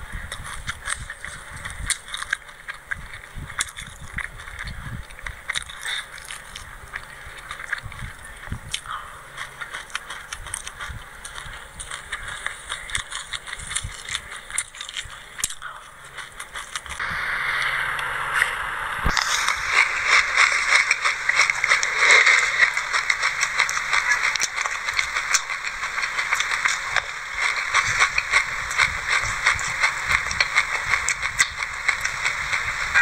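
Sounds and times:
chewing crunchy seeds: 0.0 - 17.0, 19.0 - 33.0
spoon scraping through seeds: 19.1 - 33.0.

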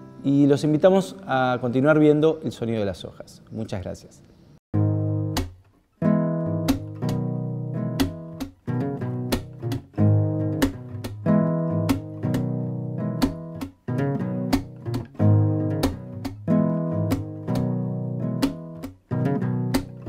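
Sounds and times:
acoustic guitar chords: 4.8 - 20.0.

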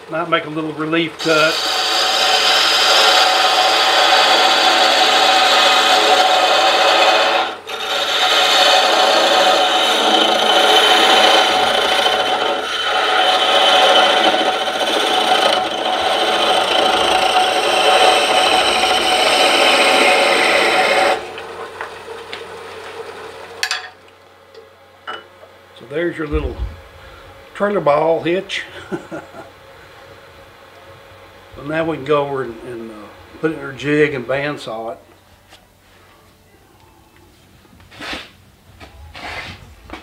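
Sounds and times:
faint running hum: 0.0 - 40.0
lathe tool scraping wood: 1.2 - 23.6.

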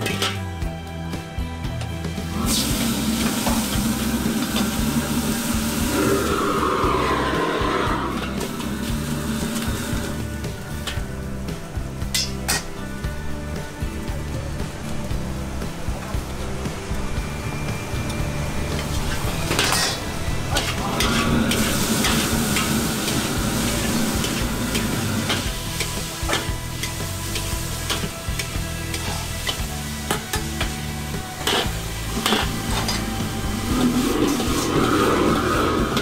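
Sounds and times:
shrimp sizzling in a wok: 1.9 - 36.0
metal ladle scraping a wok: 18.8 - 30.5, 31.4 - 33.1, 33.7 - 36.0.

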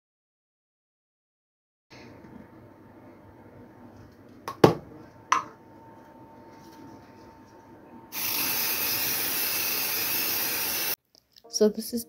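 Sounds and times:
aerosol spray hissing: 8.1 - 11.0.

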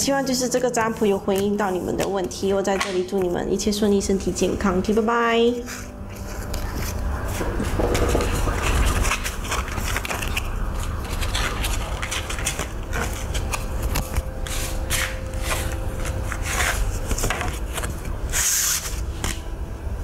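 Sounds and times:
scraping and rubbing handling: 5.6 - 19.4
low hum: 5.9 - 17.1.

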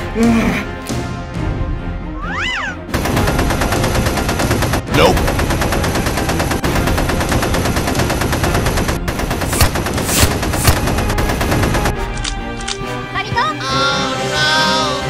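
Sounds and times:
rapid automatic gunfire: 2.9 - 12.0.

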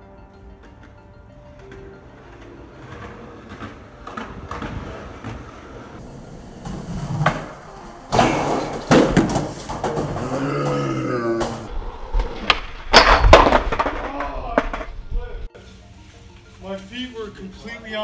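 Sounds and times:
skateboard slamming on concrete: 7.1 - 10.2, 12.3 - 14.9.

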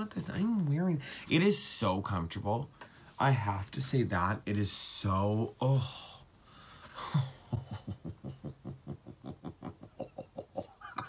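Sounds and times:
breath: 6.1 - 7.1
man giggling: 7.0 - 11.0.

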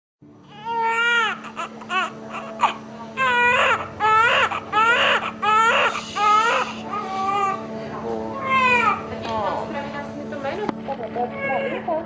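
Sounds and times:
baby crying: 0.5 - 7.6, 8.4 - 9.1.

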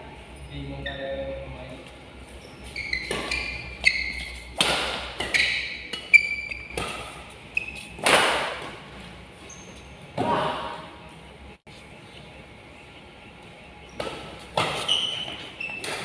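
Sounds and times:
shoes squeaking on court: 1.8 - 10.2, 13.8 - 16.0
rackets hitting shuttlecock: 3.0 - 8.9, 14.0 - 16.0.

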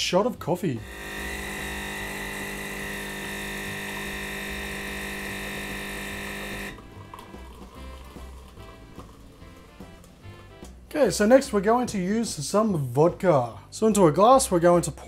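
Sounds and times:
espresso machine pump buzzing: 0.8 - 9.2
coffee pouring: 0.9 - 10.4.

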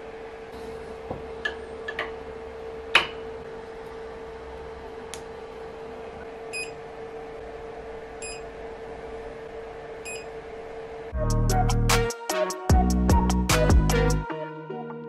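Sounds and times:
music: 11.1 - 15.0.

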